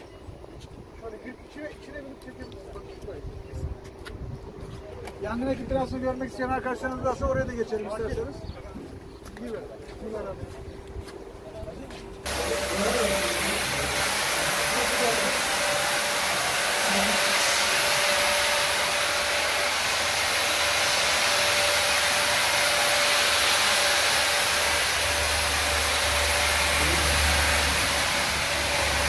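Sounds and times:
constant high whine: 0:00.0 - 0:29.0
fogger blower rushing air: 0:12.3 - 0:29.0.

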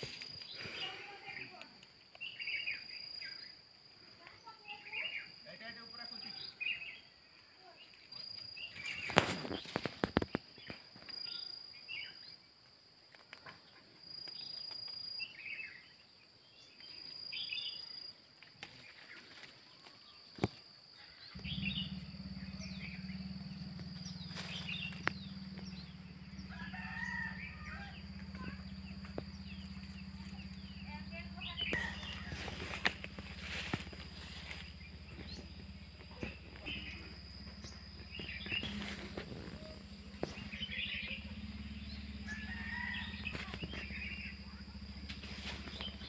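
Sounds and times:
birds chirping: 0:00.0 - 0:12.4, 0:13.6 - 0:46.0
low steady hum: 0:21.4 - 0:46.0.

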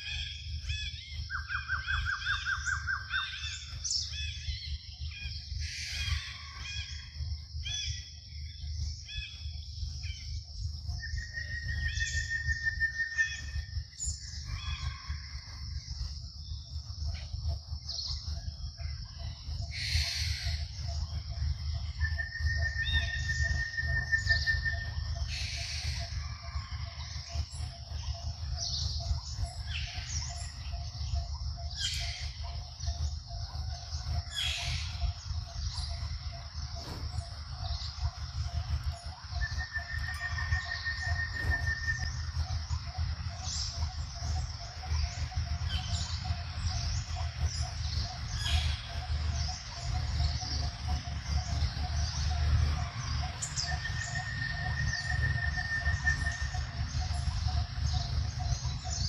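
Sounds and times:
bird trills: 0:00.0 - 0:59.0
birds chirping: 0:00.0 - 0:59.0
steady high hum: 0:00.0 - 0:59.0
low rumble: 0:32.2 - 0:59.0.

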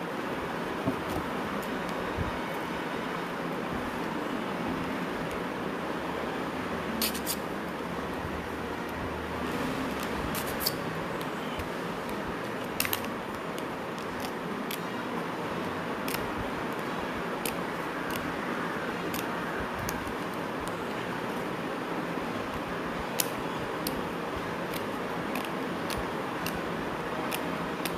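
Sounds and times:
scissors snipping card: 0:07.0 - 0:07.4, 0:10.0 - 0:14.9, 0:17.4 - 0:18.3, 0:23.1 - 0:24.0, 0:24.7 - 0:27.9.

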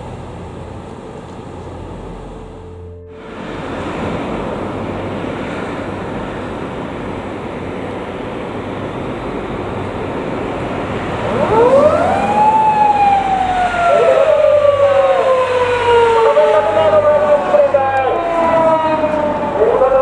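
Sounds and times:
road traffic noise: 0:00.0 - 0:20.0
police siren wailing: 0:02.5 - 0:05.1, 0:11.1 - 0:20.0.

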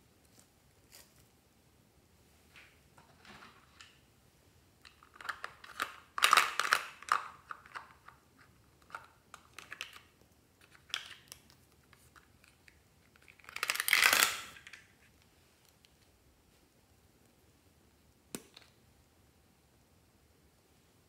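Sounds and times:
plastic toy pieces clattering: 0:04.9 - 0:08.2, 0:13.2 - 0:14.9.

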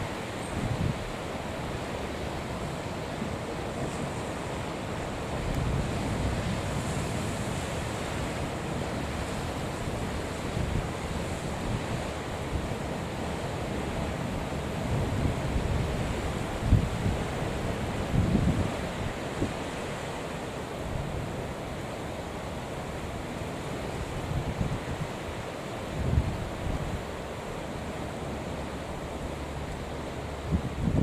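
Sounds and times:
gusty wind on microphone: 0:00.0 - 0:01.2, 0:03.5 - 0:12.9, 0:14.1 - 0:20.0, 0:24.0 - 0:25.3, 0:25.9 - 0:27.1, 0:30.2 - 0:31.0
rough sea and surf: 0:00.0 - 0:31.0.

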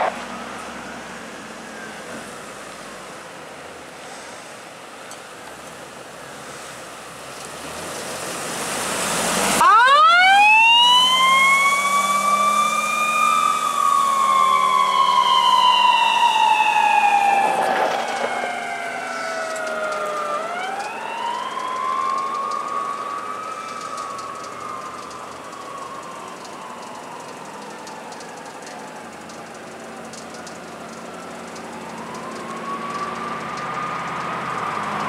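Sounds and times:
ambulance siren wailing: 0:00.0 - 0:03.0, 0:09.5 - 0:35.0
vehicle driving close by: 0:06.5 - 0:26.0, 0:30.8 - 0:35.0.

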